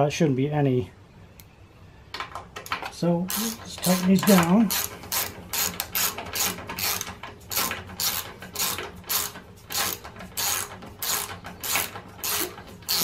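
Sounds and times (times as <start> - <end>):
hand ratchet clicking: 2.6 - 13.0.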